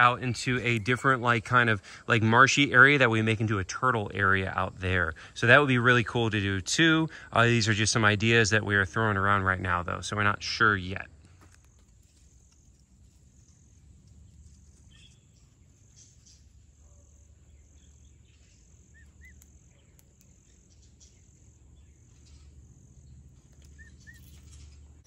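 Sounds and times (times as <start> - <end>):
high insect drone: 17.4 - 24.8.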